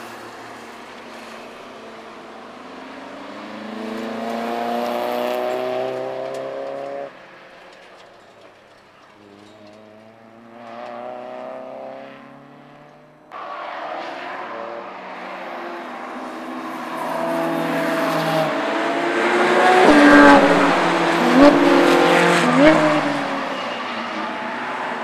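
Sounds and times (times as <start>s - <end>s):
race cars passing at high revs: 0.0s - 25.0s
engine revs jumping: 10.6s - 23.6s.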